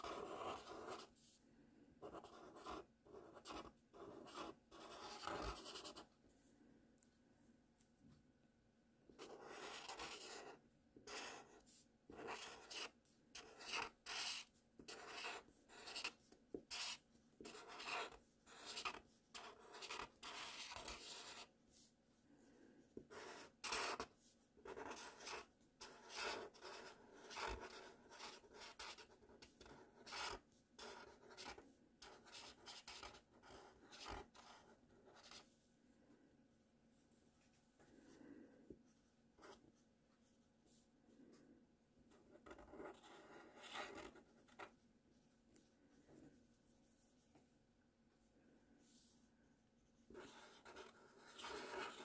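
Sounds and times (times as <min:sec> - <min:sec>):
marker pen scratching on paper: 0:00.0 - 0:01.2, 0:02.0 - 0:06.1, 0:09.1 - 0:21.9, 0:23.0 - 0:35.5, 0:39.0 - 0:39.6, 0:42.1 - 0:44.8, 0:50.0 - 0:52.0.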